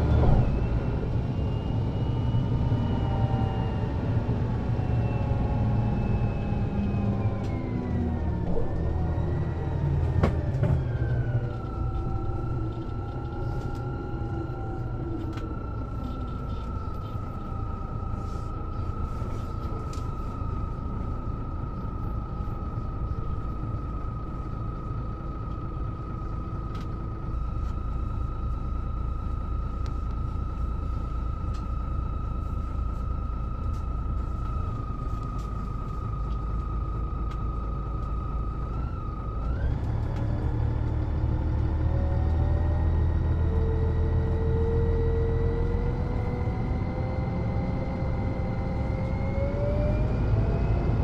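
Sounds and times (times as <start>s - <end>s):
bus engine whine: 0.0s - 51.0s
drivetrain and road rumble: 0.0s - 51.0s.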